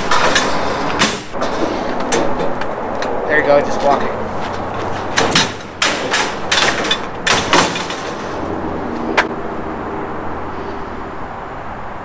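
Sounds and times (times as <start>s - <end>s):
metal gate clanking and rattling: 0.0s - 3.2s, 3.9s - 8.6s.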